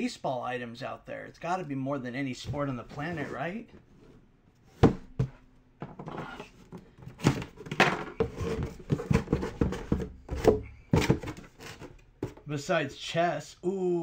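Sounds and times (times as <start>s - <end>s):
knocks on cardboard box: 4.8s - 5.4s
cardboard lid scraping and rustling: 6.0s - 12.4s.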